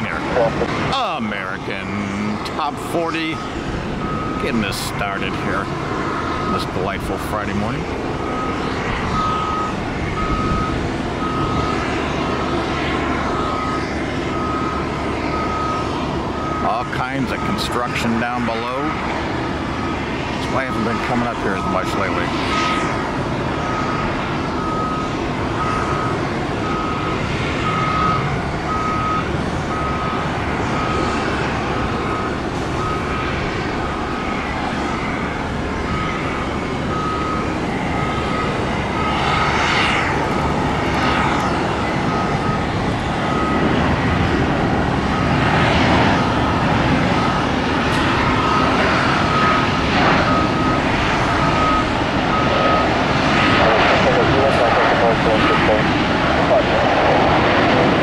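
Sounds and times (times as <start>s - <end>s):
backup beeper beeping: 0.0s - 1.6s, 8.3s - 11.8s, 20.6s - 22.8s, 23.6s - 31.2s, 35.8s - 44.1s, 45.0s - 54.3s
jet engines roaring: 0.0s - 58.0s.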